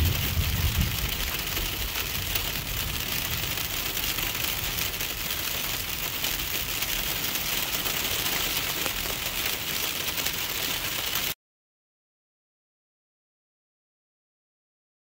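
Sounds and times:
low rumble: 0.0s - 3.7s
freezing rain pelting car windshield: 0.0s - 11.4s.

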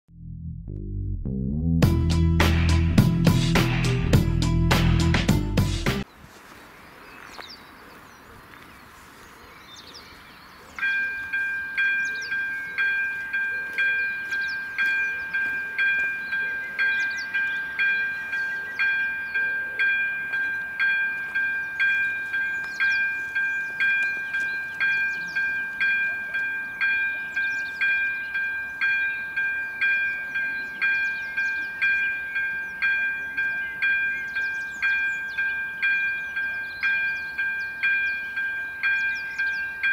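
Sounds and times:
level crossing warning bell dinging: 10.8s - 39.9s.

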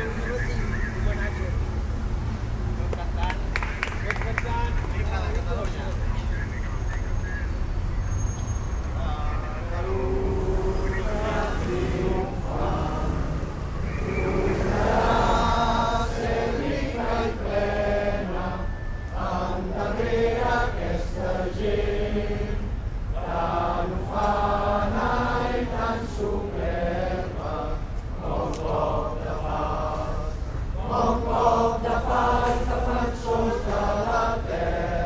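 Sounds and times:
crowd singing together: 9.7s - 35.0s.

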